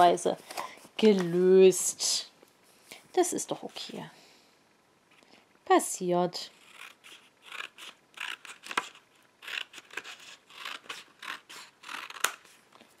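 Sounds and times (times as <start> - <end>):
scissors snipping paper: 6.6 - 12.6.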